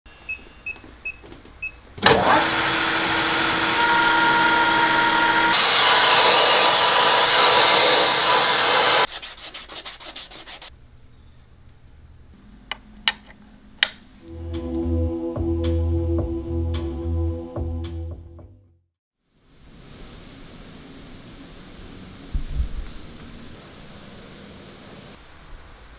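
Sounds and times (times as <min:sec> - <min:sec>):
metal lathe cutting with whine: 0:02.1 - 0:09.1.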